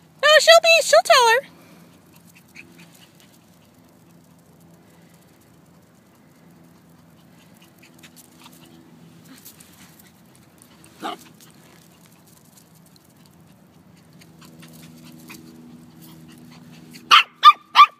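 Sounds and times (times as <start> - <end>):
puppy yipping: 16.9 - 17.9.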